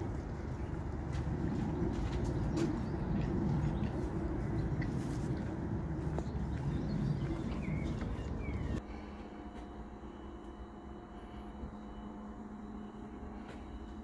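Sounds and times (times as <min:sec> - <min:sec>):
chickens murmuring: 0:00.0 - 0:08.8.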